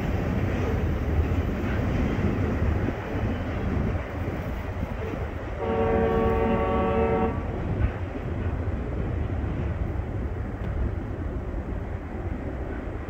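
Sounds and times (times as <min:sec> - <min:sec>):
freight train rumbling on rails: 0:00.0 - 0:13.0
locomotive air horn blast: 0:05.6 - 0:07.5.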